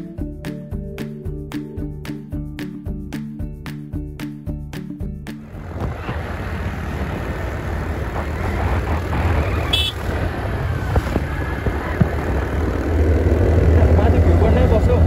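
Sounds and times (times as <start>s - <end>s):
motor scooter engine rumble: 5.4s - 15.0s
wind on the microphone: 5.6s - 12.8s.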